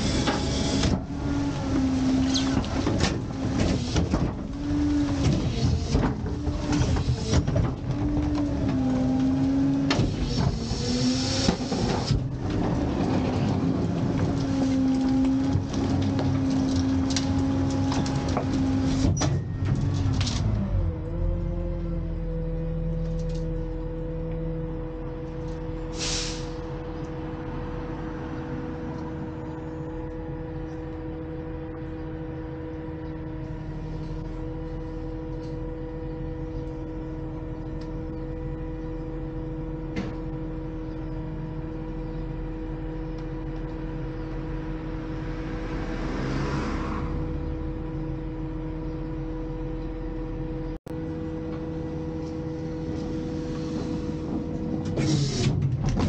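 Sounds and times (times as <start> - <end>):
truck engine rumble: 0.0 - 56.0
two-tone whine: 14.2 - 25.9, 26.5 - 56.0
air hiss: 25.9 - 26.6.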